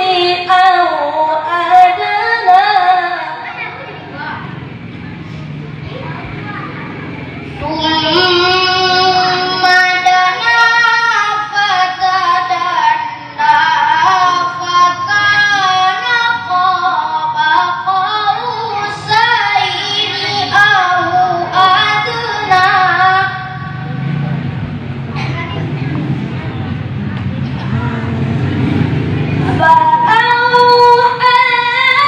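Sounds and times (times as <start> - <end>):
boy chanting: 0.0 - 4.6, 5.8 - 24.4, 29.4 - 32.0.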